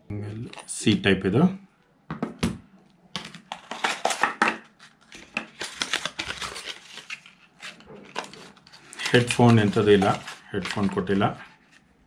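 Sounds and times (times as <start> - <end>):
paper insert crinkling: 3.2 - 12.0.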